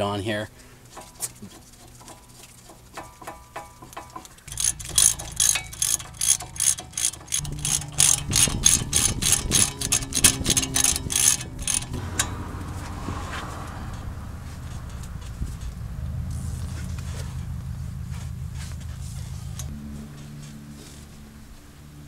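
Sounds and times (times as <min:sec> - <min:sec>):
socket ratchet clicking: 0:03.0 - 0:12.3.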